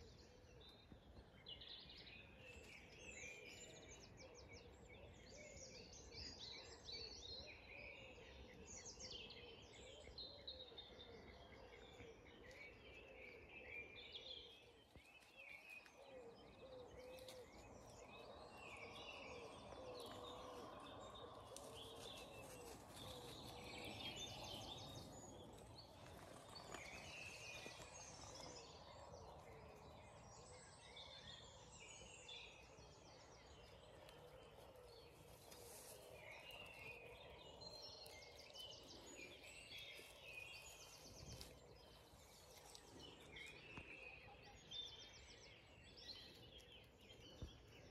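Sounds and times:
songbirds chirping: 0.0 - 47.9.

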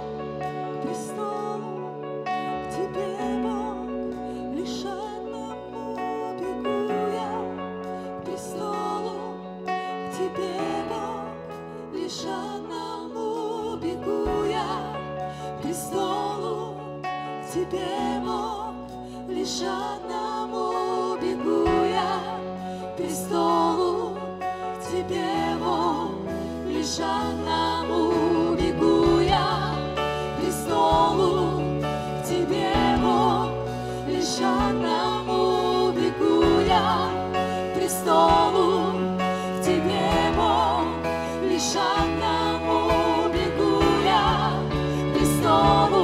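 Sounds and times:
bass guitar: 0.0 - 12.2, 14.1 - 46.0
electric guitars: 0.0 - 46.0
keyboards: 0.0 - 46.0
people singing with vibrato: 0.0 - 46.0.

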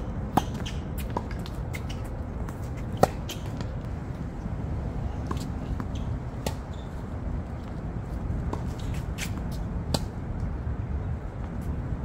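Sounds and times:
tennis ball hit by racket: 0.3 - 3.7.

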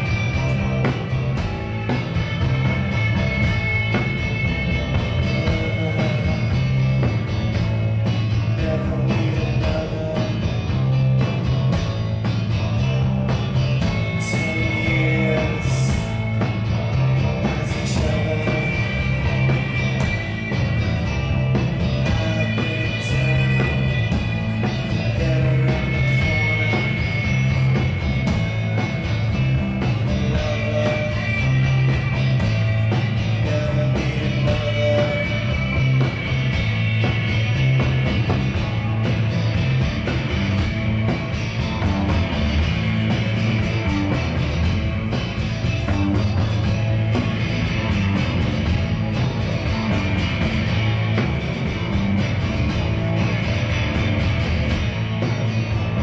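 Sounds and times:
rock band playing: 0.0 - 56.0
person singing: 5.1 - 6.8, 8.5 - 10.7, 14.0 - 16.3, 17.4 - 20.0, 22.0 - 27.4, 30.1 - 31.9, 33.3 - 35.7.

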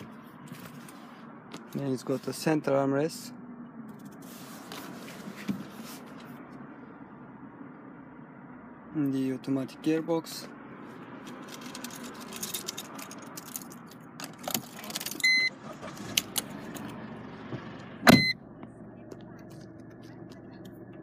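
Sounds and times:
clicks and handling noise: 11.2 - 15.3
short electronic beeps: 15.2 - 15.6, 18.1 - 18.4.

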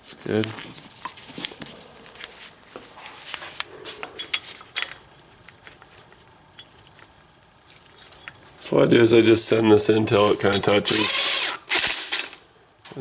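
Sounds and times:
metal hand tools clinking: 0.3 - 2.5, 3.4 - 8.6.

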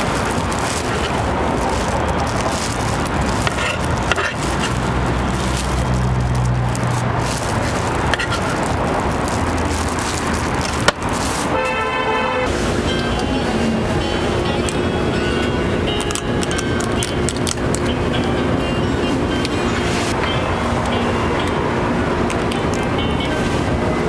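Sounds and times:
road traffic: 0.0 - 24.0
music: 12.5 - 24.0.

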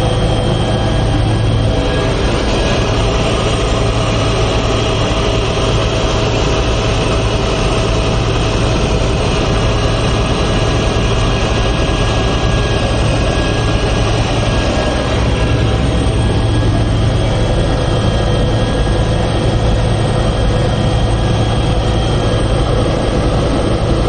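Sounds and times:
helicopter cabin drone: 0.0 - 24.0.

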